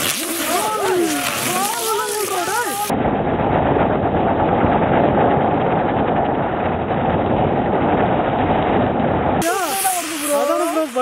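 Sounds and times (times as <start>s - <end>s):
fireworks hissing and crackling: 0.0s - 2.9s, 9.4s - 11.0s.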